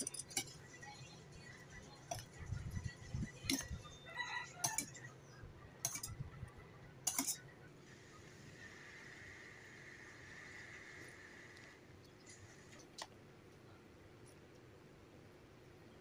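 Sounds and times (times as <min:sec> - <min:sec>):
metal spoon clinking in steel bowl: 0:00.0 - 0:00.8, 0:02.1 - 0:05.1, 0:05.8 - 0:06.3, 0:07.0 - 0:07.5.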